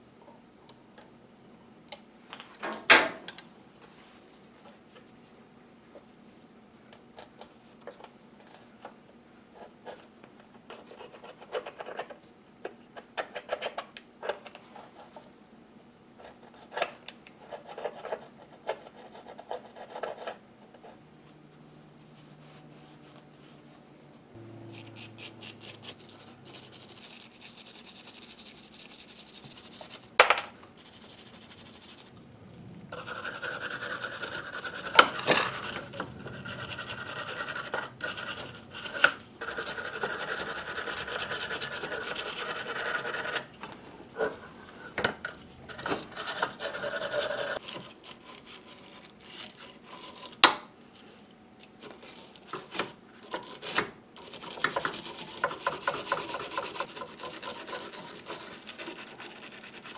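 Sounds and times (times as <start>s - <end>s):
wire brush scrubbing metal: 24.6s - 30.0s, 33.0s - 43.4s, 54.2s - 59.9s.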